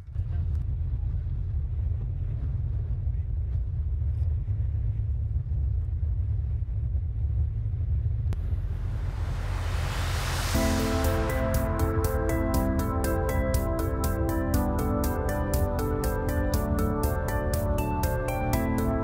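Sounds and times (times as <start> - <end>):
road noise: 8.4 - 19.0
hiss: 8.6 - 10.6.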